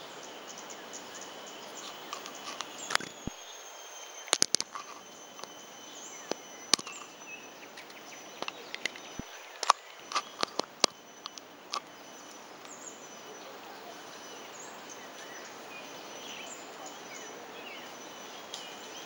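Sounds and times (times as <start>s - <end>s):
high-pitched insect drone: 0.0s - 19.0s
sharp clicks and ticks: 4.3s - 5.6s, 7.8s - 11.9s.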